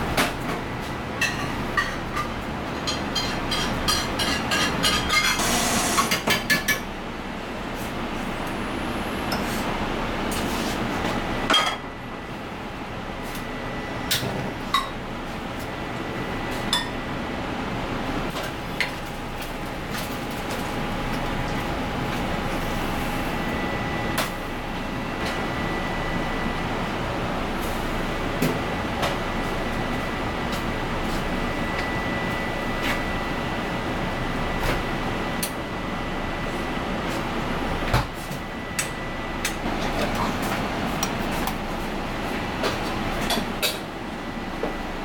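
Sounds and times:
kitchen noise: 0:01.2 - 0:06.9
gas burner rushing: 0:05.3 - 0:06.3.

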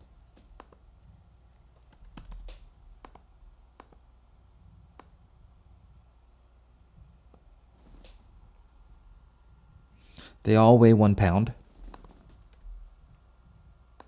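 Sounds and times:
computer keyboard keystrokes: 0:00.5 - 0:03.2, 0:11.6 - 0:12.7
mouse clicks: 0:00.5 - 0:04.0, 0:04.9 - 0:05.2.

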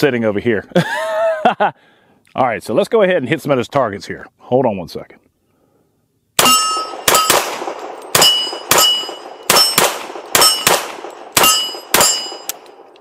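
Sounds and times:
pistol shots: 0:06.4 - 0:12.9
steel targets clanging: 0:06.4 - 0:12.9.

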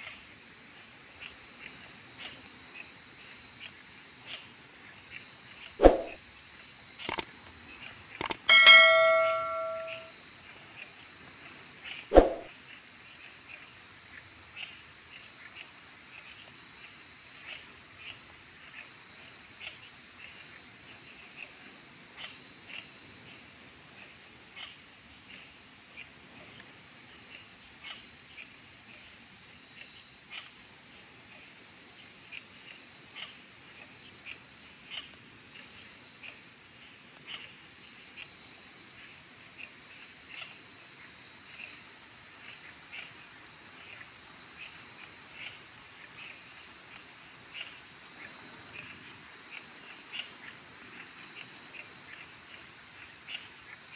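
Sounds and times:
night insects droning: 0:00.0 - 0:53.9
sharp clicks: 0:07.1 - 0:07.3, 0:08.2 - 0:08.5.

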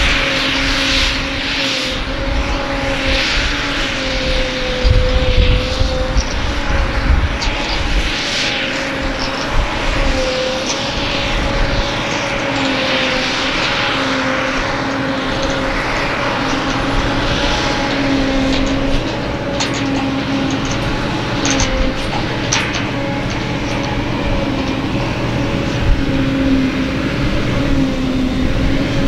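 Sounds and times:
forage harvester chopping grass: 0:08.8 - 0:29.0.

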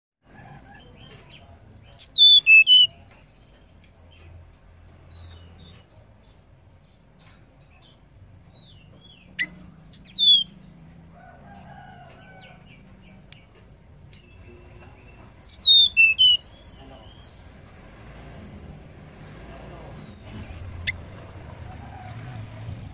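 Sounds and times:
bird singing high whistled notes: 0:01.7 - 0:03.0, 0:09.4 - 0:10.5, 0:15.2 - 0:17.4.

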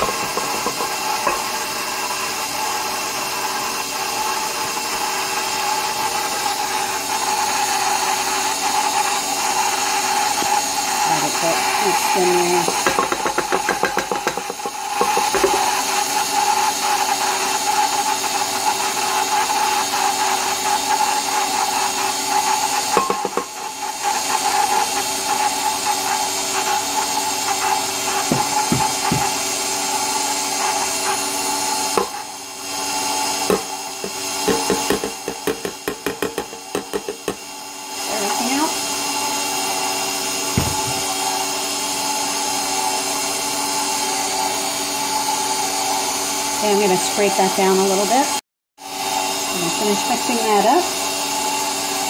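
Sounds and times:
mixer beater knocking in dough: 0:00.0 - 0:39.0, 0:40.3 - 0:41.6
stand mixer motor whine: 0:00.0 - 0:52.0.

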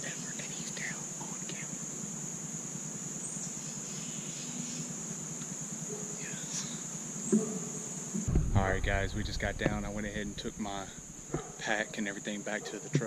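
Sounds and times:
high-pitched insect chorus: 0:00.0 - 0:13.0
sharp knock: 0:08.2 - 0:11.5.

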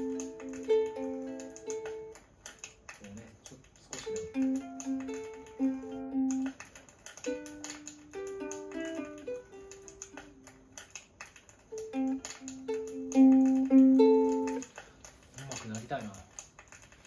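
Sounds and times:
ukulele chords and plucked notes: 0:00.0 - 0:02.4, 0:04.0 - 0:06.6, 0:07.2 - 0:10.8, 0:11.7 - 0:14.6.

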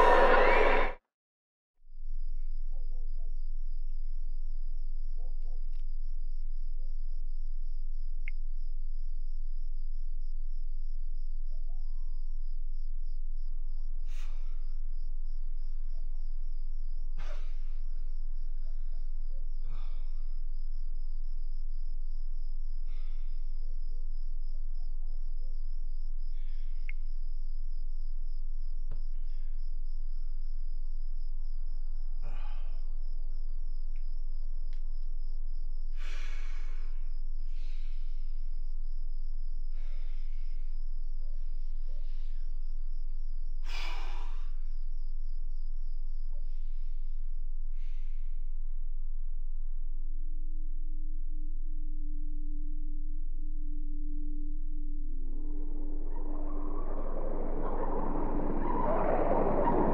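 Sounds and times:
crickets chirping: 0:00.0 - 0:01.0, 0:01.9 - 0:59.9
low steady hum: 0:44.3 - 0:59.9.

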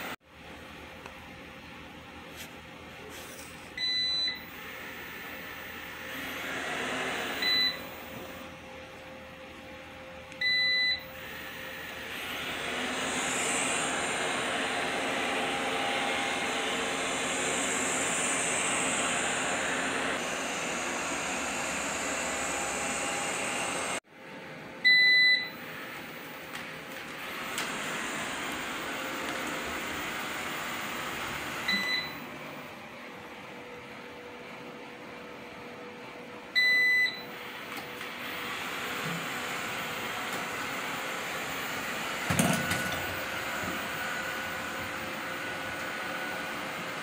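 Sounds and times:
robot vacuum whirring: 0:11.2 - 0:24.0, 0:26.9 - 0:31.8.

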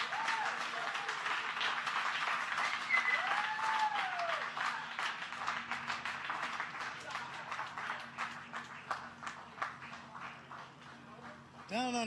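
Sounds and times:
long cheer from one voice: 0:00.0 - 0:01.3, 0:02.9 - 0:04.9
people cheering: 0:00.0 - 0:01.8, 0:02.6 - 0:05.2
people clapping: 0:00.0 - 0:12.0.

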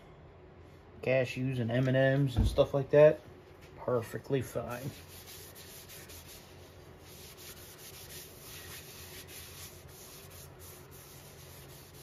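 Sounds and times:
cloth rubbing on wood: 0:04.7 - 0:12.0.

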